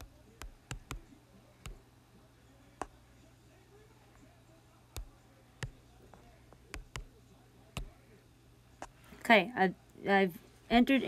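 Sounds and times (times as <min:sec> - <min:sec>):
touchscreen keyboard taps: 0:00.0 - 0:01.0, 0:06.7 - 0:07.1
faint low hum: 0:00.0 - 0:11.0.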